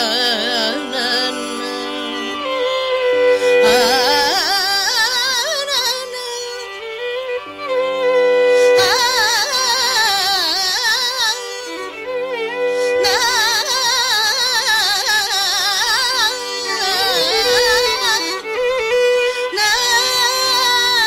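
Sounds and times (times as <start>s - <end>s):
ornamented sliding melody: 0.2s - 4.8s.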